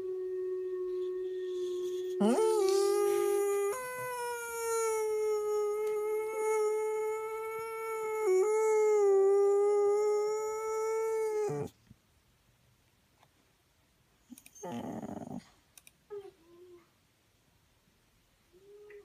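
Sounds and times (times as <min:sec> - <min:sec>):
dog howling: 0:00.8 - 0:11.7.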